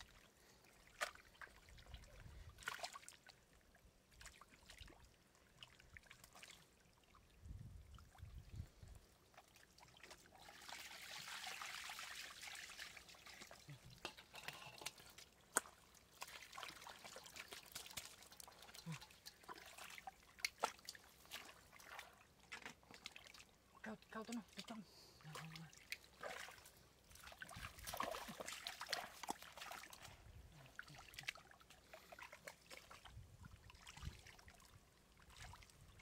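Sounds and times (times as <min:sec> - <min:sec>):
shallow water trickling: 0:00.0 - 0:36.0
small splashes and clicks: 0:00.8 - 0:03.4, 0:04.1 - 0:06.7, 0:09.3 - 0:11.2, 0:12.9 - 0:33.2.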